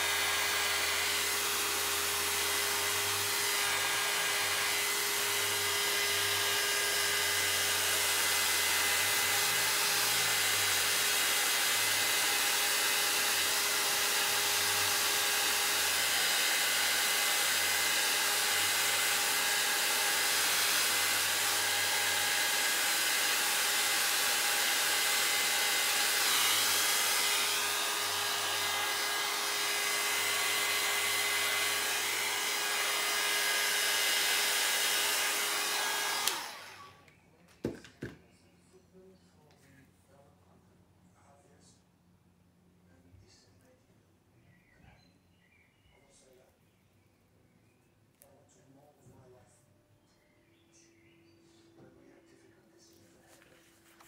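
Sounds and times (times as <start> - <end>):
hair dryer running: 0.0 - 37.1.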